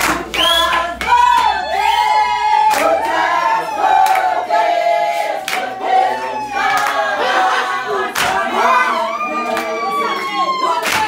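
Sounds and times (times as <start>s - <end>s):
hand claps: 0.0s - 2.0s, 2.6s - 3.2s, 4.0s - 4.4s, 5.1s - 5.8s, 6.7s - 7.0s, 8.1s - 8.5s, 9.4s - 10.2s, 10.8s - 11.0s
women singing together: 0.0s - 11.0s.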